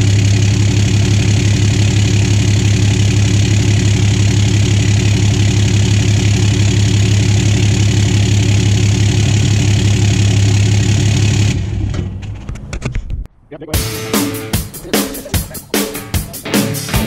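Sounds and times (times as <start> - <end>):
diesel engine idling: 0.0 - 11.9.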